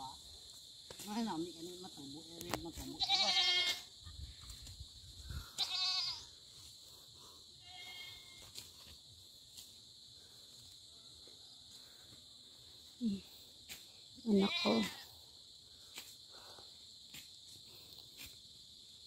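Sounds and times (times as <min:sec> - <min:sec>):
goat bleating: 0:03.0 - 0:03.8, 0:05.6 - 0:06.3, 0:07.6 - 0:08.4, 0:14.4 - 0:15.0.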